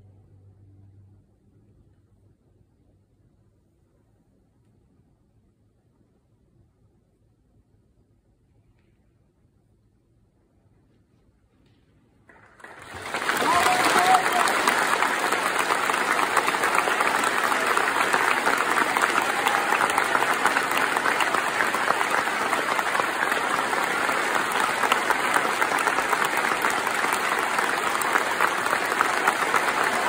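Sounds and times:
large audience applauding: 12.3 - 30.0.

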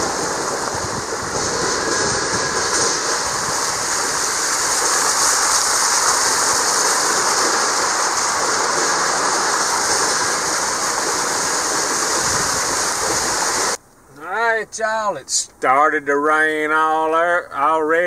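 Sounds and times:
truck tires churning water: 0.0 - 13.8
water spray rushing: 0.0 - 13.8.

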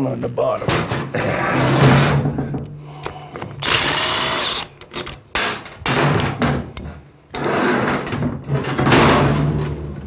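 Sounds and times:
cordless impact driver running: 3.6 - 4.7.

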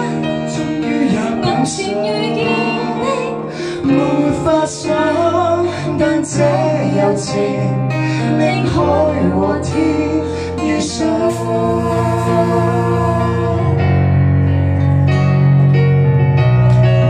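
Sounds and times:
man and woman singing: 0.0 - 13.9
backing music with keyboard: 0.0 - 17.0.

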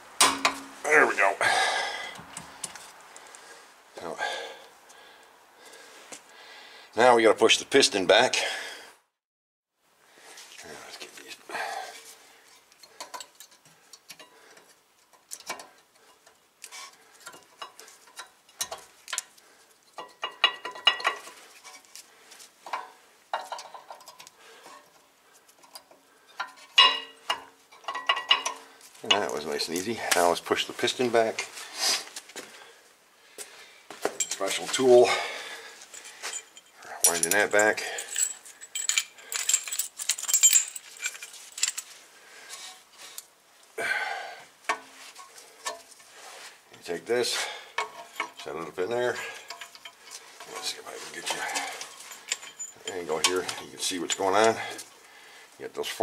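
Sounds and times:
metal brake pads clinking: 47.8 - 54.9.

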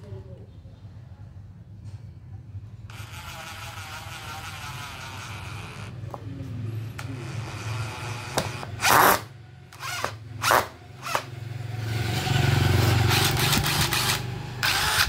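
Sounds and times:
cordless screwdriver whirring: 2.9 - 6.1, 7.0 - 11.3, 13.1 - 15.0.

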